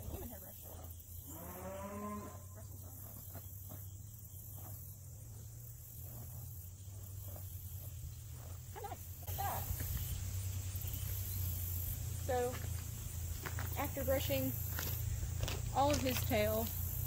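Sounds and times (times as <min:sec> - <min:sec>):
brush stroking horse tail: 0:00.0 - 0:01.0, 0:05.8 - 0:10.1
insects chirring: 0:00.0 - 0:17.0.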